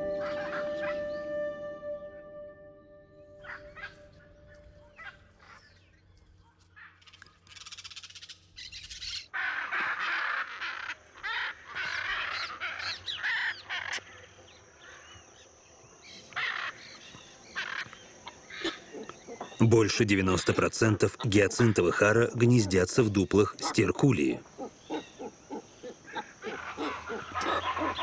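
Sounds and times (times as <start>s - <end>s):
macaws squawking: 0.0s - 1.2s, 3.4s - 5.7s, 6.8s - 14.1s, 16.3s - 16.9s, 17.6s - 28.0s.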